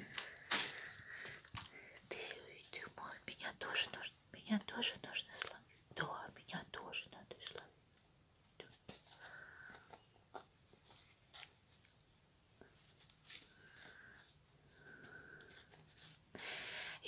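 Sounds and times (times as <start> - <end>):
rustling and scratching on cloth: 8.6 - 16.3.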